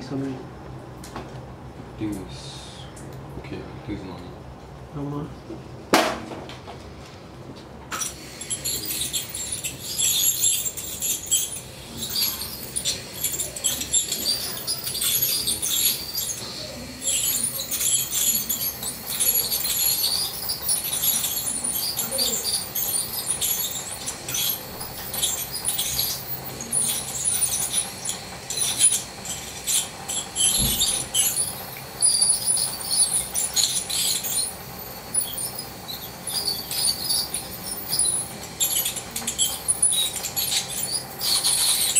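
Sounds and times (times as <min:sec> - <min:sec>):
dental scaler squeaks and crackles: 0:07.9 - 0:41.9.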